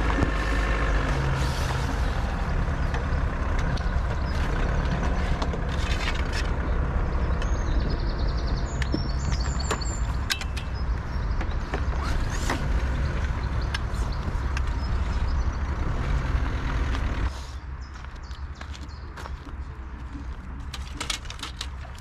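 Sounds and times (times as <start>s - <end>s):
clicks knocks and scrapes: 3.6s - 6.7s, 11.4s - 14.8s, 20.2s - 22.0s.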